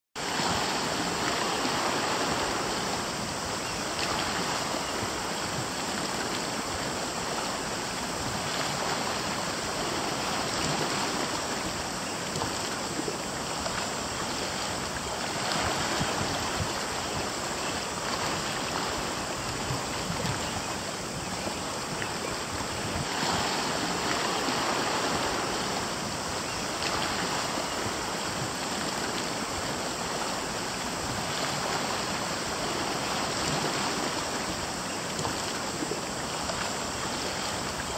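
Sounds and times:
sea water washing against rocks: 0.2 - 37.9.

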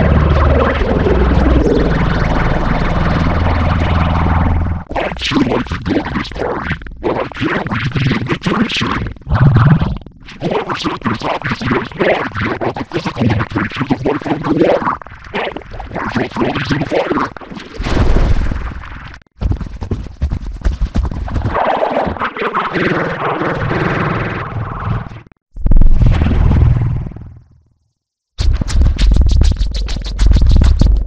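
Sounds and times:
loud low burst: 0.0 - 4.9.

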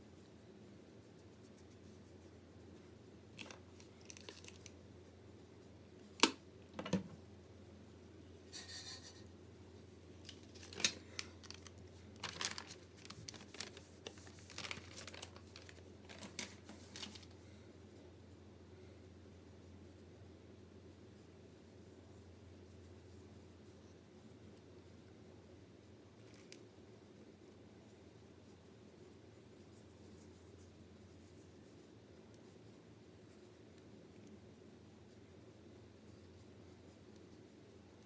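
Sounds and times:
paper rustling and crinkling: 3.3 - 4.7, 10.2 - 17.4.

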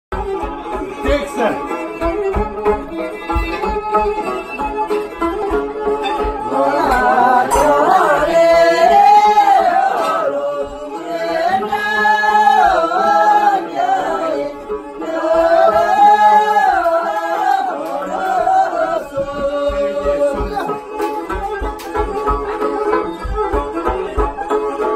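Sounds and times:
lutes strummed: 0.1 - 24.9
low thuds on a steady beat: 0.2 - 9.7, 18.3 - 24.9
people singing together: 6.3 - 21.1.

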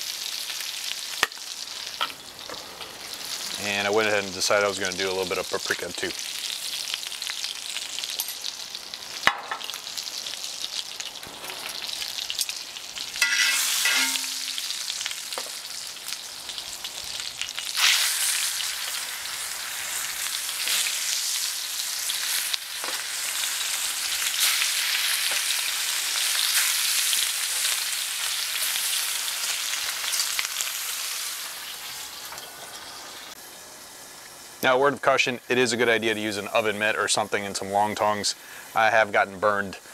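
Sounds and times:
butter sizzling in a skillet: 0.0 - 39.9
steak frying in a pan: 0.0 - 39.9.

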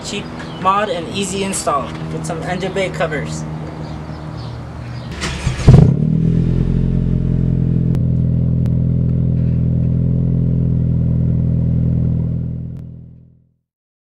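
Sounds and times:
low droning hum: 5.2 - 13.1.

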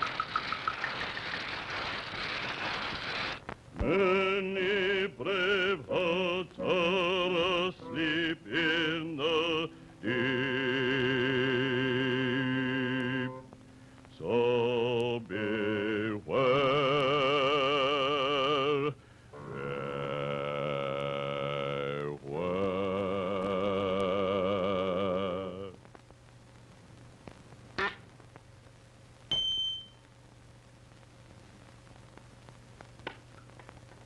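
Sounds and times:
operatic singing with vibrato: 3.8 - 13.5, 14.2 - 25.8.

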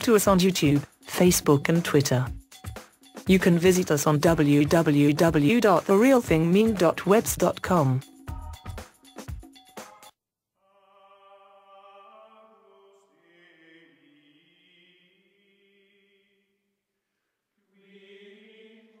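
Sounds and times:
choir-like chanting music: 10.6 - 16.3, 17.7 - 19.0.

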